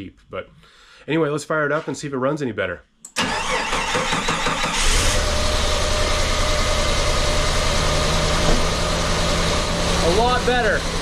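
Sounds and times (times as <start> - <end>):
starter motor cranking: 3.2 - 5.3
car engine revving and idling: 4.7 - 11.0.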